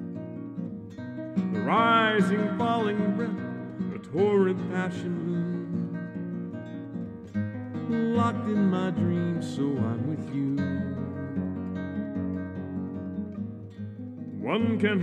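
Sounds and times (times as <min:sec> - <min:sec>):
acoustic guitar playing: 0:00.0 - 0:15.0.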